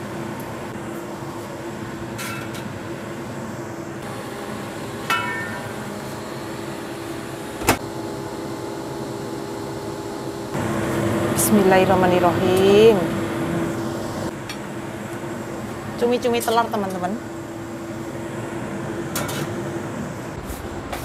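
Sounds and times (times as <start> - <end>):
low fan hum: 0.0 - 21.0
short ringing clink: 5.1 - 5.7.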